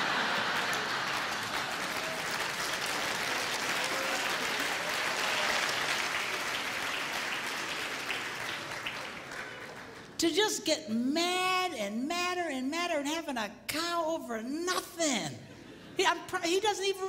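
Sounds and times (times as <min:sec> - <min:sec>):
audience applauding: 0:00.0 - 0:10.2.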